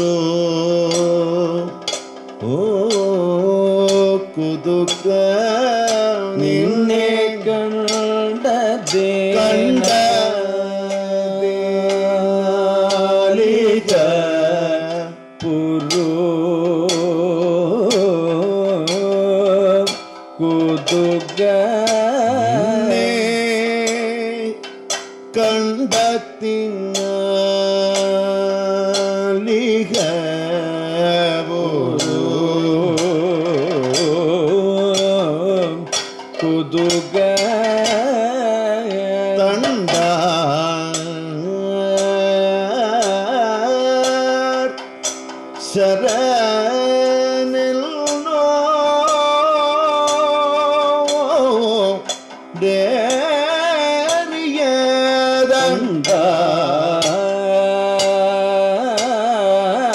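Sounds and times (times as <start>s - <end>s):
sharp percussion strikes: 0.0s - 13.2s, 13.8s - 59.9s
man singing: 0.0s - 45.0s, 45.6s - 59.9s
steady drone: 9.4s - 10.4s, 22.3s - 23.5s.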